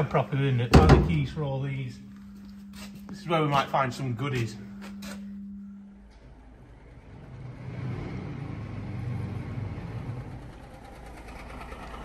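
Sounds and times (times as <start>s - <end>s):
truck engine rumbling under load: 6.3s - 12.0s.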